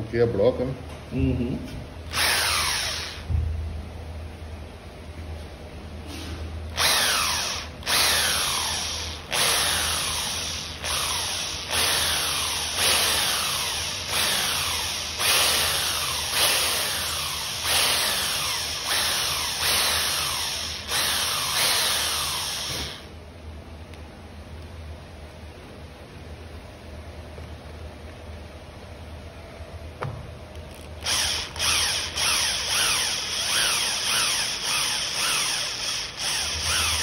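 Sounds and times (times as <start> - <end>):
electric drill whining in bursts: 2.1 - 3.3, 6.7 - 23.1, 30.7 - 37.0.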